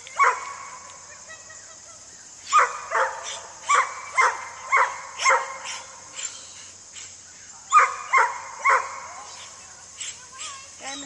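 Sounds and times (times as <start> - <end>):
dog barking: 0.2 - 0.8, 2.5 - 6.0, 7.7 - 9.3.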